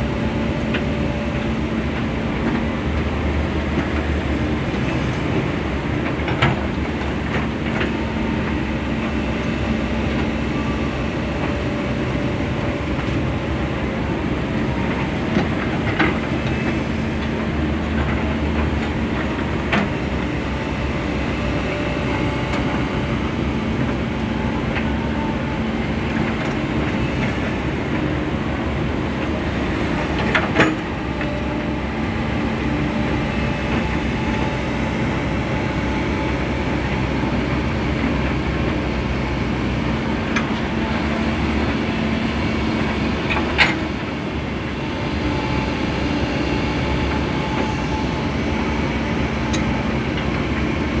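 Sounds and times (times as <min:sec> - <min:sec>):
excavator diesel engine running: 0:00.0 - 0:51.0.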